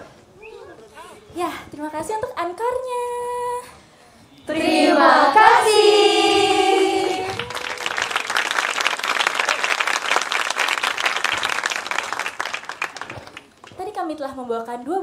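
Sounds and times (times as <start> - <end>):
women singing together: 4.5 - 7.6
audience applauding: 6.6 - 13.8.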